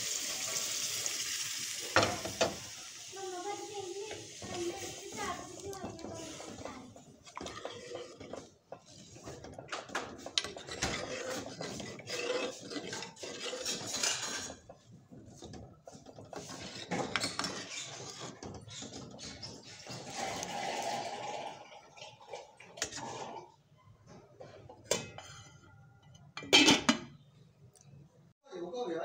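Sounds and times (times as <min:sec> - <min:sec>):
metal ladle scraping steel pot: 0:04.0 - 0:21.6, 0:22.6 - 0:23.6, 0:24.6 - 0:27.2.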